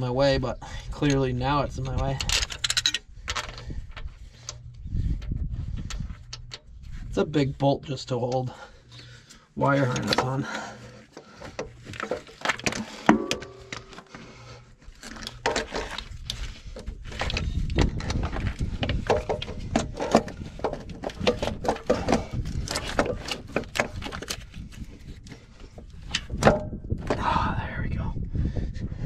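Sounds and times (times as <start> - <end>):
metallic clunks and scrapes: 9.8 - 27.2.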